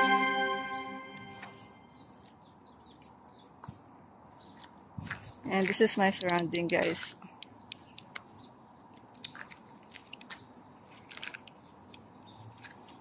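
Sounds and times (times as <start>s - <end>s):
soft clicks and crunches: 8.9s - 13.0s.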